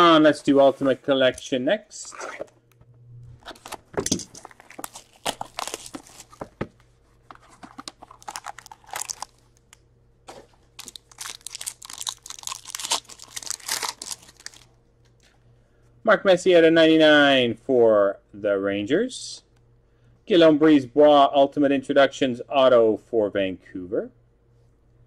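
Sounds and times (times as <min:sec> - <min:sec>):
wrapped pack crinkling: 0:03.5 - 0:06.6, 0:07.3 - 0:09.8, 0:10.8 - 0:14.7
plastic shrink-wrap tearing: 0:04.4 - 0:06.4, 0:07.7 - 0:09.7, 0:10.8 - 0:14.7
cardboard box opened: 0:04.4 - 0:06.6, 0:07.3 - 0:09.2.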